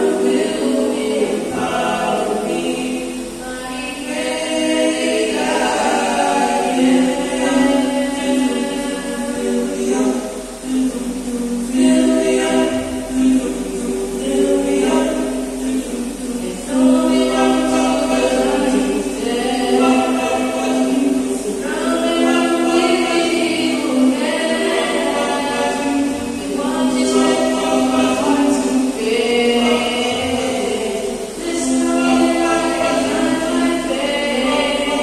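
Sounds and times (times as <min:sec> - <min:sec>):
male group singing a cappella: 0:00.0 - 0:35.0.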